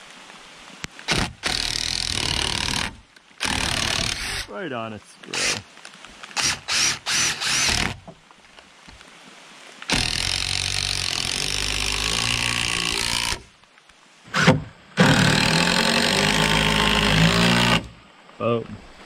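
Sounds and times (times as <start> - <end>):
impact driver driving screws: 1.1 - 4.5, 6.4 - 8.0, 9.9 - 13.4, 14.4 - 17.9.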